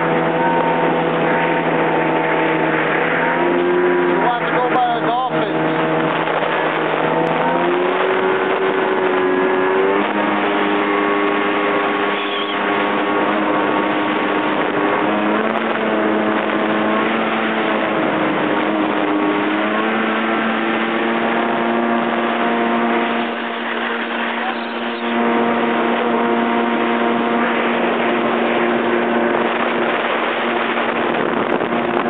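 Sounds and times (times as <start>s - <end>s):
jet ski engine droning: 0.0s - 32.0s
water rushing: 0.0s - 32.0s.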